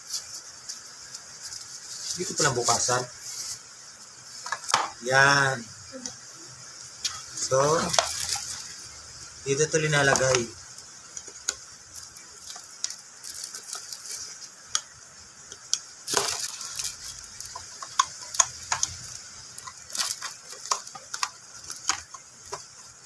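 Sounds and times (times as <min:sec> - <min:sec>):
plastic wrapping crinkling: 0:00.0 - 0:03.6, 0:07.0 - 0:14.9, 0:15.5 - 0:23.0
plastic parts clicking: 0:07.8 - 0:08.7, 0:11.1 - 0:14.8, 0:15.5 - 0:23.0.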